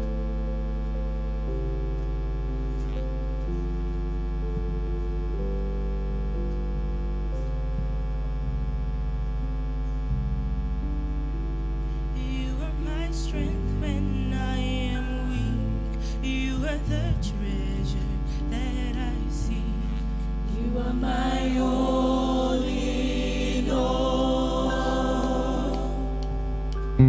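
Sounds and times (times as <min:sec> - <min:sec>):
electric keyboard chords: 0:00.0 - 0:27.0
electrical mains hum: 0:00.0 - 0:27.0
person singing: 0:12.2 - 0:26.6.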